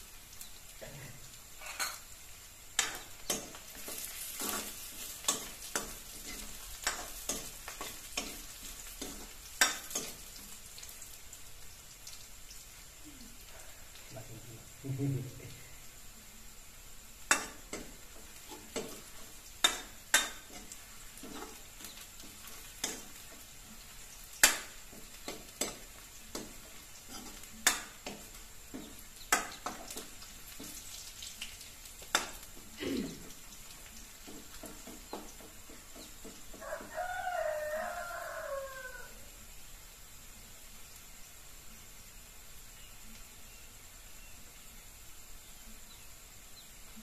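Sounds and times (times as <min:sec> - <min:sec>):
faint sizzle: 0:00.0 - 0:47.0
rooster crowing: 0:36.5 - 0:39.4.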